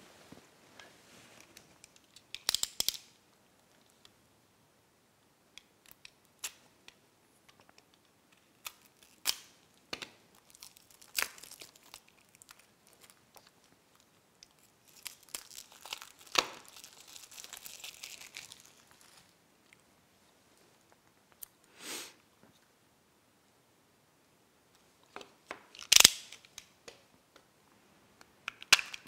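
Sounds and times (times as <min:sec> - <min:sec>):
plastic wrap crackling and tearing: 0:08.4 - 0:19.4.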